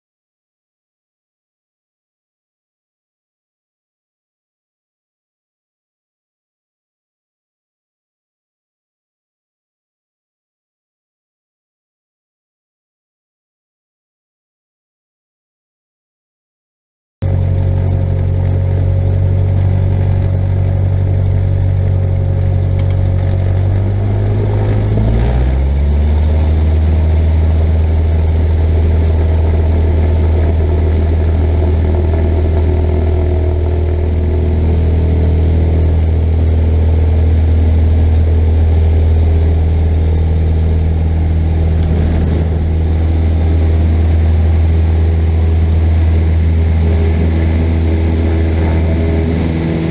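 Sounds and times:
light aircraft engine and propeller: 17.2s - 49.9s.

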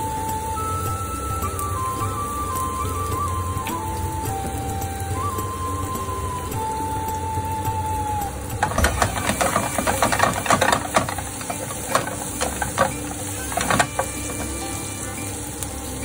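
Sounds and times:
oil sizzling: 0.0s - 16.0s
spatula scraping a frying pan: 8.6s - 14.9s.

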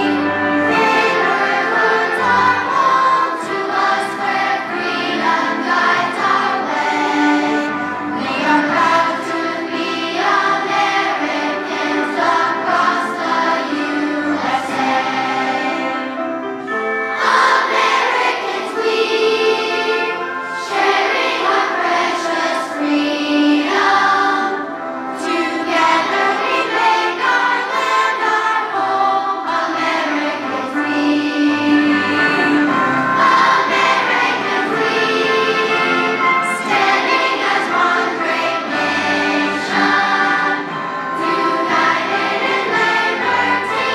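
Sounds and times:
children singing in chorus: 0.0s - 16.3s, 17.0s - 43.9s
instrumental accompaniment: 0.0s - 43.9s.

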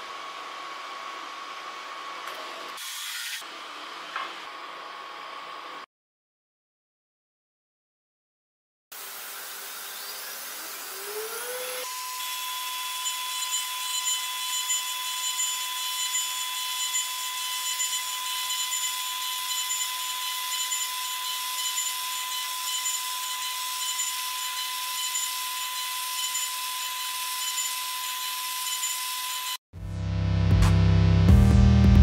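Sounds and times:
engraving bit cutting metal: 9.0s - 29.6s.

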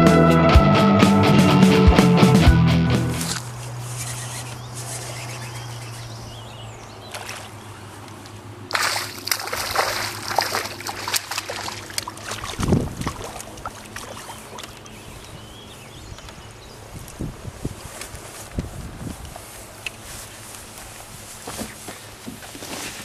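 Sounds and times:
fish splashing in water: 7.1s - 7.6s, 8.7s - 15.0s.

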